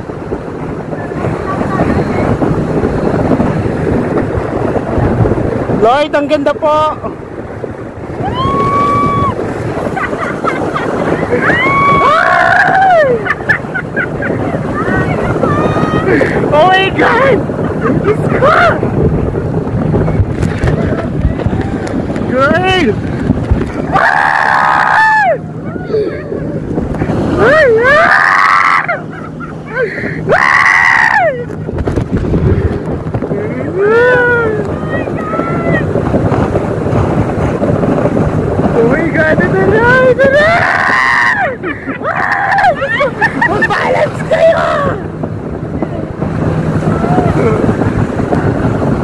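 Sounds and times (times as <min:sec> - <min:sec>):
water rushing: 0:00.0 - 0:49.0
wind buffeting microphone: 0:00.0 - 0:49.0
people screaming: 0:08.2 - 0:09.4, 0:11.2 - 0:13.5, 0:23.9 - 0:26.6, 0:27.4 - 0:29.1, 0:29.7 - 0:31.5, 0:40.3 - 0:45.1, 0:46.8 - 0:47.5.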